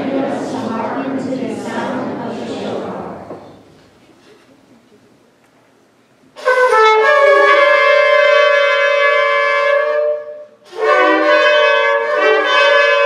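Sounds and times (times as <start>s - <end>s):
shofar blasts: 6.4s - 13.0s.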